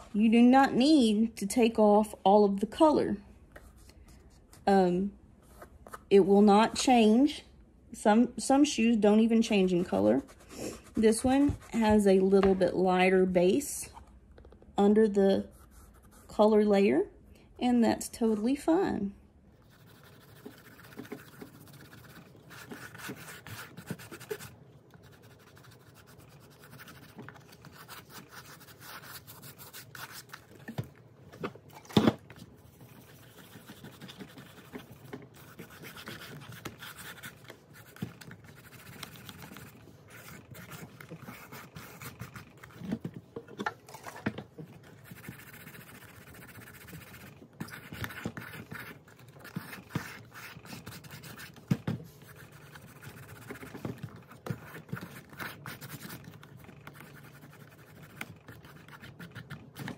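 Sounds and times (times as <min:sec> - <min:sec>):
cotton ball rubbing leather: 0:45.0 - 0:51.6.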